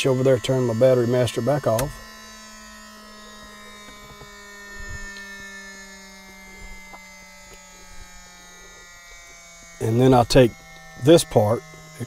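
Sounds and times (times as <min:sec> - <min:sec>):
cockpit electrics hum: 0:00.0 - 0:12.0
faint whining tones falling in pitch: 0:00.0 - 0:12.0.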